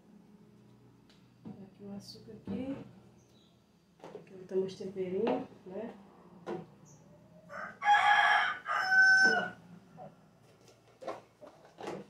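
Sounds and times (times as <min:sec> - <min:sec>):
rooster crowing: 0:07.5 - 0:09.7.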